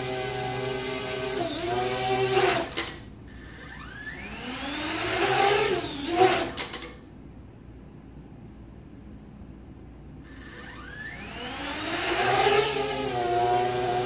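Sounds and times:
drone propellers whining: 10.3s - 12.9s.

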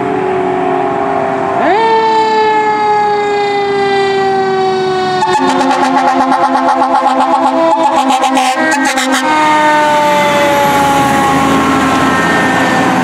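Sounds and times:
fire engine siren: 0.0s - 13.0s
traffic noise: 0.0s - 13.0s
electronic music: 5.2s - 9.4s.

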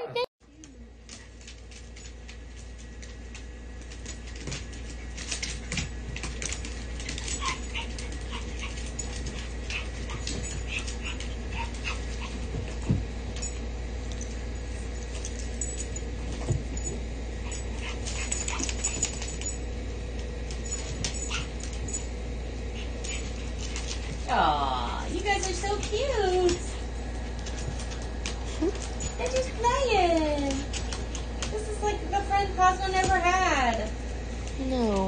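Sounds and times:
paws scuffling on floor: 0.7s - 35.0s
small dogs yipping and whimpering: 7.1s - 12.4s, 20.8s - 21.8s.

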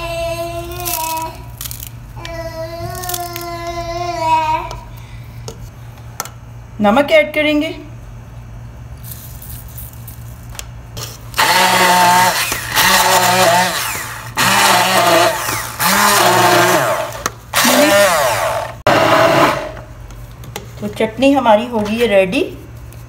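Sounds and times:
stick blender motor whirring: 11.4s - 19.8s.

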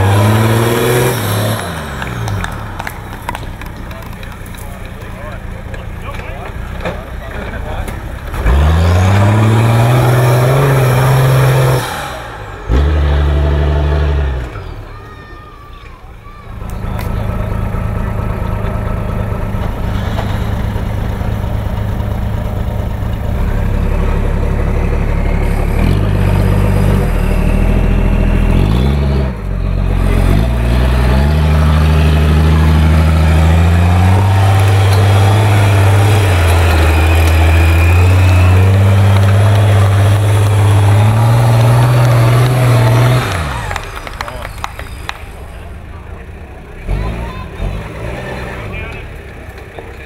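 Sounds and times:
truck engine climbing under load: 0.0s - 50.0s.

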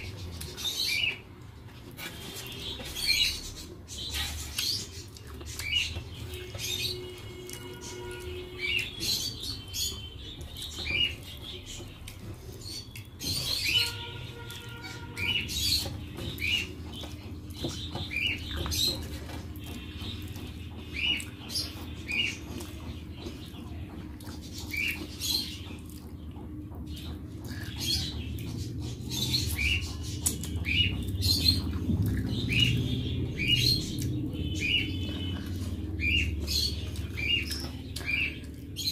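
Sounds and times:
chewing and lip smacks: 4.5s - 6.4s.

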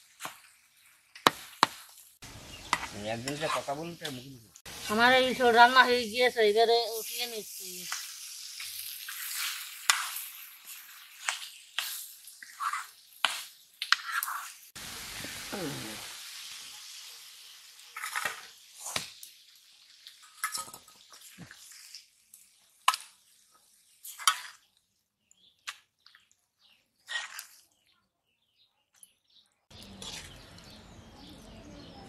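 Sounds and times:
frying hiss: 0.0s - 25.9s
metal ladle scraping pots: 29.9s - 30.4s.

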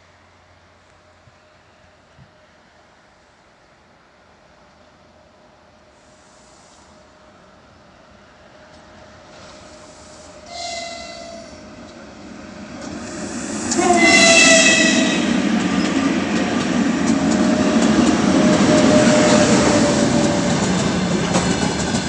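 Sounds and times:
freight train rumbling past: 4.2s - 22.0s
locomotive horn blasts: 10.4s - 11.6s, 13.7s - 15.4s.

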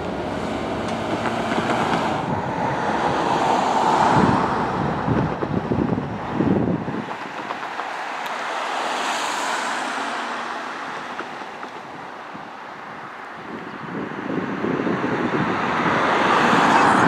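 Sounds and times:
wind buffeting microphone: 0.0s - 9.3s, 10.4s - 17.0s.

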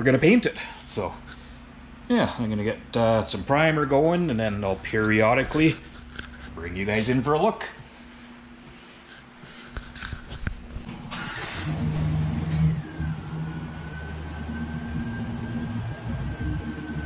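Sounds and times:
machine motor humming: 10.9s - 17.0s
thin high whine: 11.6s - 17.0s.

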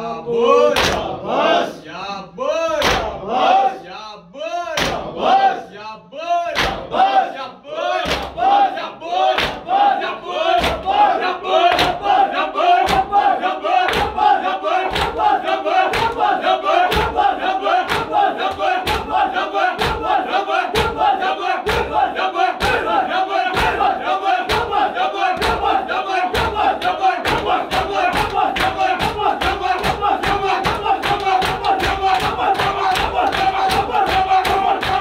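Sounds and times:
men chanting in unison: 0.0s - 35.0s
hands slapping chests: 0.8s - 1.1s, 2.8s - 3.2s, 4.8s - 5.1s, 6.6s - 6.9s, 8.0s - 8.4s, 9.4s - 9.7s, 10.6s - 10.9s, 11.7s - 12.1s, 12.8s - 13.2s, 13.8s - 15.3s, 15.9s - 19.2s, 23.5s - 24.8s, 25.4s - 35.0s.

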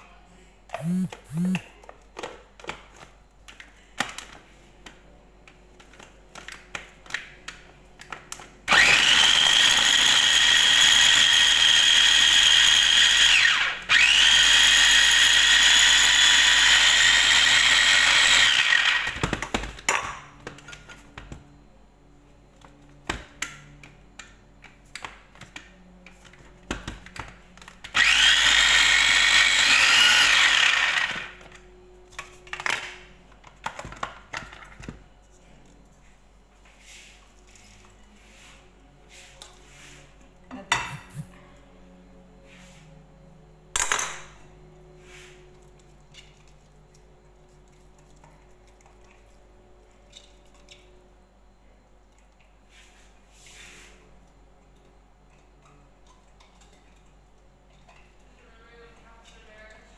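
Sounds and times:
food chopper motor whine: 0.7s - 1.6s, 8.7s - 19.3s, 27.9s - 31.4s.

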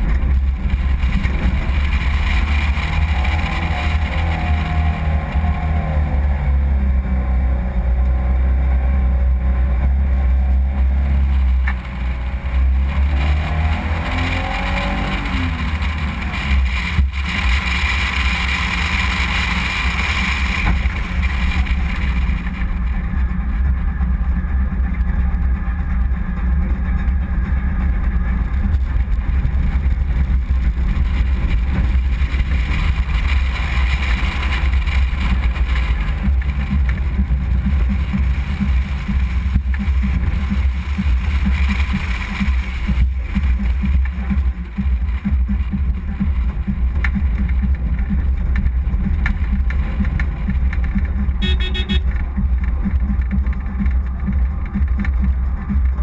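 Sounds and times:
engine noise: 0.0s - 56.0s
car horn toot: 51.4s - 52.2s.

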